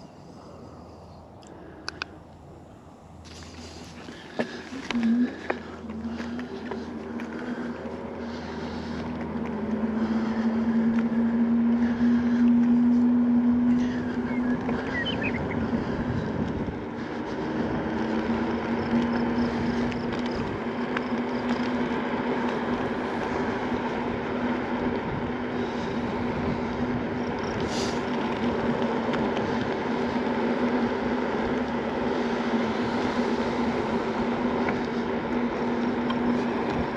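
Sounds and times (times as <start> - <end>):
electric scooter motor whine: 0.0 - 36.9
tyre and wind noise: 12.2 - 36.9.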